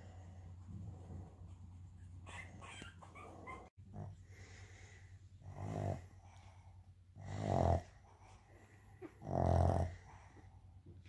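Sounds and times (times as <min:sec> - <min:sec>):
dog snoring: 0:05.4 - 0:06.2, 0:07.2 - 0:08.2, 0:09.0 - 0:10.4.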